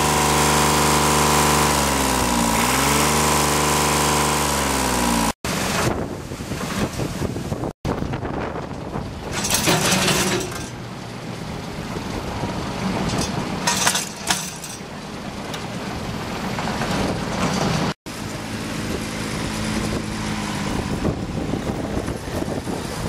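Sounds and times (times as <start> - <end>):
tractor diesel engine running: 0.0 - 23.0
wind gusts on microphone: 5.5 - 9.6, 18.6 - 23.0.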